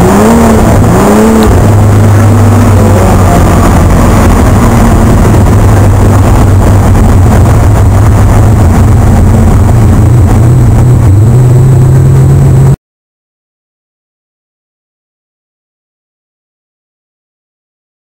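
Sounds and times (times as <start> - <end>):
race car engine from inside: 0.0 - 12.8.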